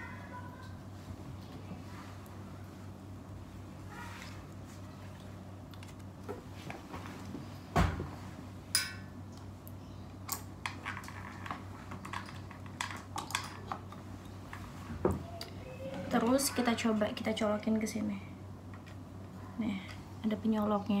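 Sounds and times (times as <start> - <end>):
faint low hum: 0.0 - 21.0
clicks and knocks of small objects: 10.3 - 14.0.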